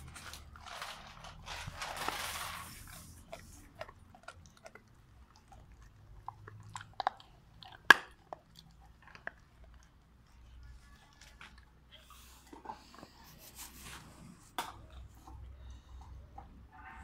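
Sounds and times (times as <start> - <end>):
dog chewing a bone: 2.4 - 16.8
teeth clicking on bone: 3.3 - 11.8.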